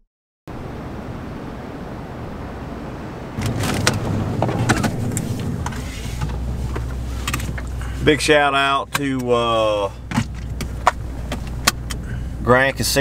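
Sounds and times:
low hum: 0:00.5 - 0:12.5
handling clicks and knocks: 0:03.4 - 0:07.9, 0:08.8 - 0:12.1
vehicle cab hiss: 0:04.6 - 0:08.4, 0:11.2 - 0:12.5.

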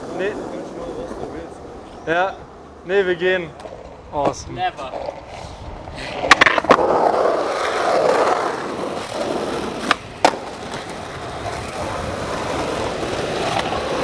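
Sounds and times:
skateboard wheels rolling on asphalt: 0:00.0 - 0:14.0
skateboard clacks: 0:03.5 - 0:14.0.

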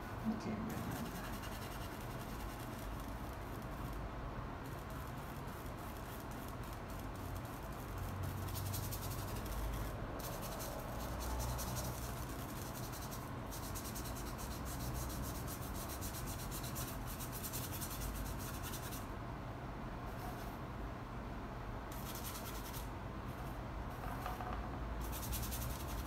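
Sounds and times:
paintbrush strokes on canvas: 0:00.0 - 0:04.0
steady low hum: 0:00.0 - 0:26.0.

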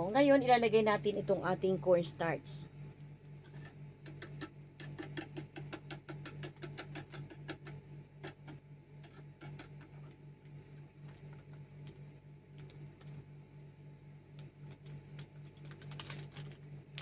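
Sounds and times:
steady low hum: 0:00.0 - 0:17.0
powder pouring from paper packet: 0:14.9 - 0:17.0.

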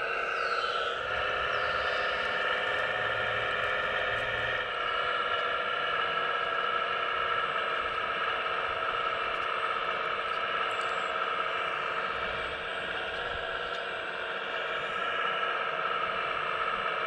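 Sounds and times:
hydraulic pump whining: 0:00.2 - 0:05.4.

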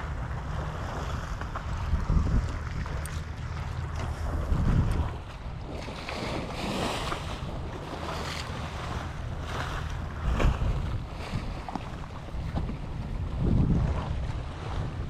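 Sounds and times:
water slapping against seawall: 0:00.0 - 0:15.0
wind buffeting microphone: 0:00.0 - 0:15.0.

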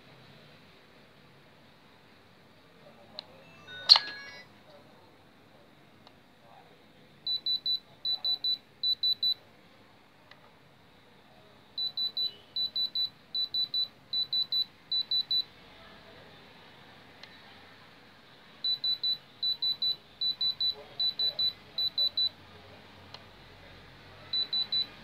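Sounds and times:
gemstone tester beeping: 0:03.4 - 0:04.5, 0:07.3 - 0:09.4, 0:11.8 - 0:15.5, 0:18.6 - 0:22.4, 0:24.3 - 0:25.0.

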